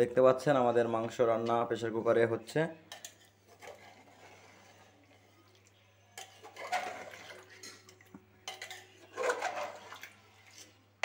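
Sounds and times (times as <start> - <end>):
spatula scraping and clinking pot: 2.9 - 5.2, 6.1 - 10.8
spatula stirring thick curry: 2.9 - 5.4, 6.2 - 7.9.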